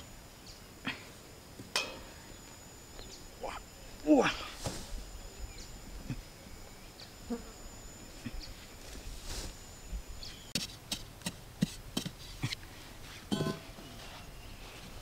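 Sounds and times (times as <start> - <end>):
insects calling with high tones: 0.0 - 10.6
hands scuffing dry soil: 8.6 - 9.7.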